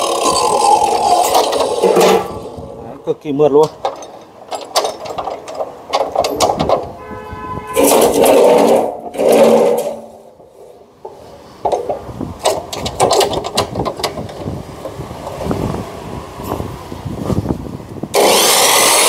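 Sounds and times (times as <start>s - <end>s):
metallic clicks and clanks: 0.2s - 2.5s, 3.6s - 7.0s, 7.7s - 10.2s, 11.0s - 15.6s
steel bar scraping on metal: 0.2s - 2.6s, 7.6s - 10.8s.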